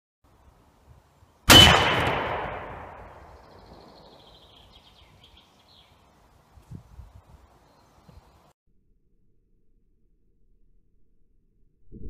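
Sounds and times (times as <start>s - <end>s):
rifle shot echoing: 1.5s - 4.6s
small bird chirping: 3.2s - 8.5s.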